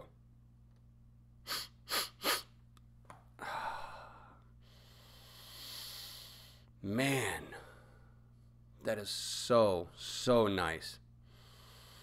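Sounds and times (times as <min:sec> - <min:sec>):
man sniffing snuff: 0:01.4 - 0:02.6, 0:05.2 - 0:06.5
man breathing: 0:03.4 - 0:06.7, 0:07.4 - 0:08.4, 0:11.2 - 0:12.0.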